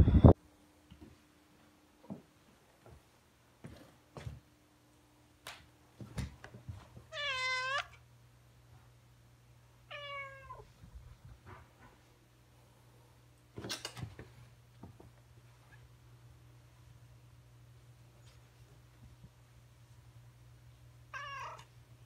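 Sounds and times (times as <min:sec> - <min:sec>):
cat meowing: 0:07.1 - 0:08.0, 0:09.9 - 0:10.6, 0:21.1 - 0:21.7.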